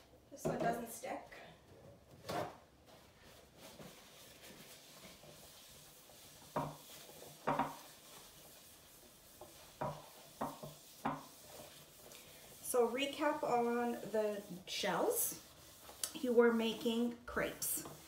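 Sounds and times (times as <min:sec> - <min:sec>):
paper towel rubbing pan: 0:02.2 - 0:18.0.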